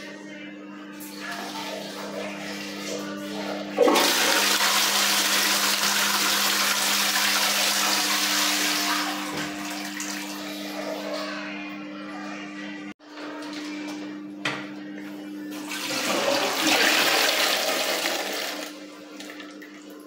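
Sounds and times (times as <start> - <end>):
toilet flushing: 1.0 - 11.5, 15.5 - 20.0.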